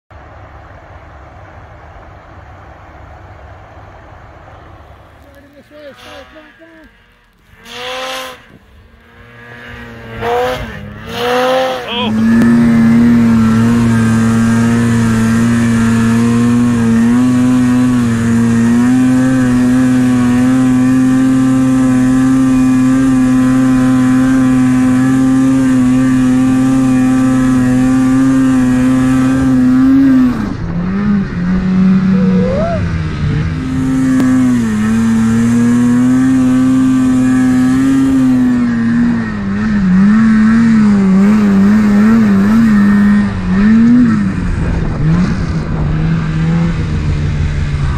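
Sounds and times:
snowmobile engine revving: 4.8s - 47.9s.

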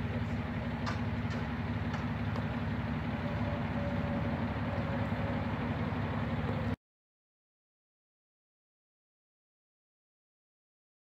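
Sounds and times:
vehicle engine idling: 0.0s - 6.8s.

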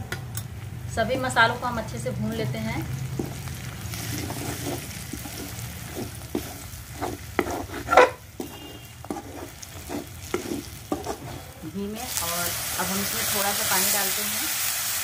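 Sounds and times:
onions and spices sizzling: 0.5s - 15.0s
spoon scraping metal pan: 3.2s - 11.6s.

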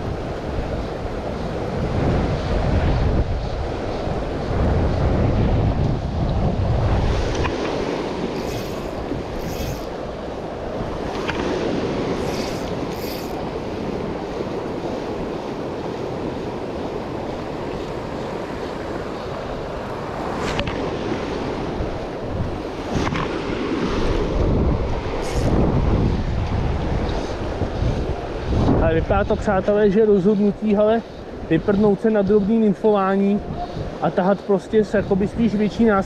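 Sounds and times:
wind buffeting microphone: 0.0s - 36.0s
fast-flowing river: 6.4s - 26.0s.

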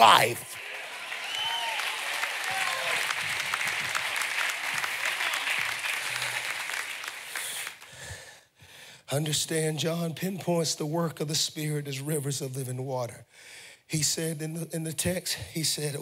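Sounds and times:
congregation applauding: 0.0s - 8.0s
people shouting: 1.4s - 3.0s.

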